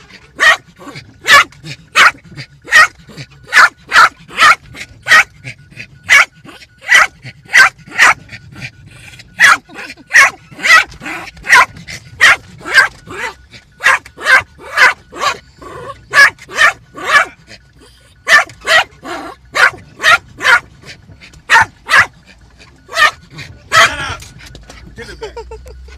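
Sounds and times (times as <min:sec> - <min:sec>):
small dog barking: 0:00.4 - 0:05.3, 0:06.1 - 0:08.2, 0:09.4 - 0:15.4, 0:16.1 - 0:17.3, 0:18.2 - 0:20.7, 0:21.5 - 0:22.1, 0:22.9 - 0:24.0.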